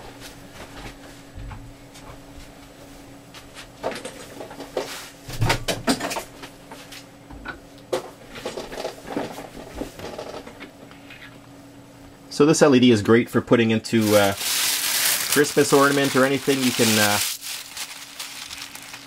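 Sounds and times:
faint steady hum: 0:09.0 - 0:19.0.

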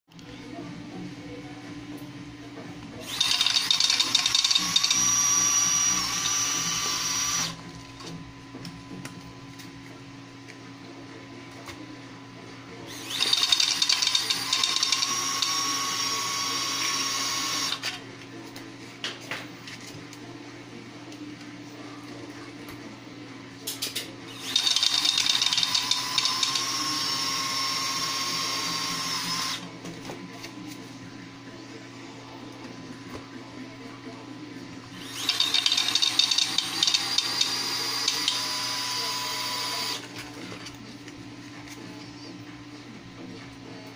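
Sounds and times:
card shuffler motor whining: 0:03.0 - 0:07.8, 0:12.9 - 0:18.0, 0:24.3 - 0:29.7, 0:34.9 - 0:40.6.

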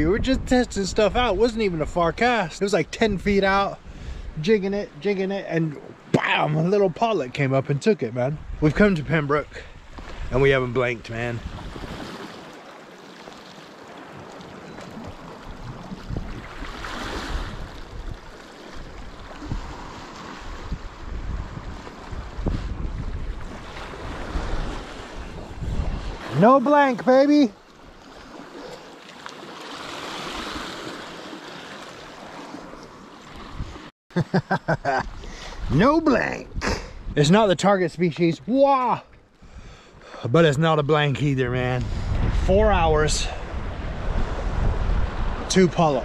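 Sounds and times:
wind gusting on microphone: 0:00.0 - 0:05.0, 0:08.3 - 0:12.6, 0:14.0 - 0:26.5, 0:33.4 - 0:33.9, 0:34.9 - 0:37.6, 0:41.0 - 0:46.0
sea surf on shore: 0:00.0 - 0:46.0.

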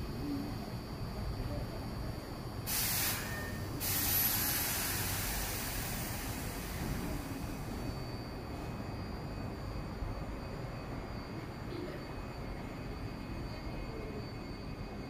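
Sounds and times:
train background hum: 0:00.0 - 0:15.0
compressed air hissing: 0:02.7 - 0:07.0.

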